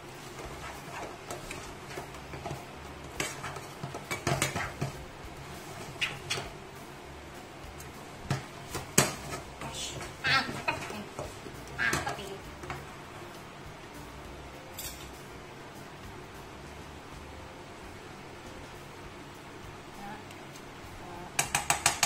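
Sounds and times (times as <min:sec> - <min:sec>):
spatula scraping frying pan: 0:00.0 - 0:06.5, 0:08.3 - 0:12.4.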